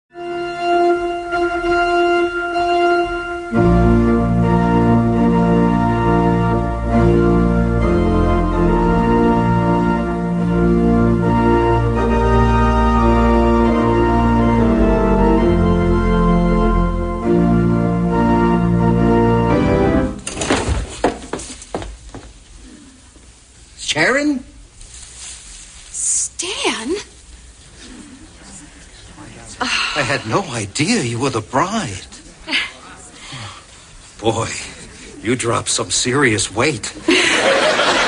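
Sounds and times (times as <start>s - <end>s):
organ playing held chords: 0.1s - 20.2s.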